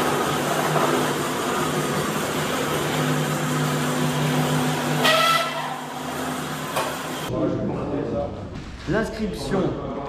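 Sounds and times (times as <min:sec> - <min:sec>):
roller shutter rolling up: 0:00.0 - 0:07.3.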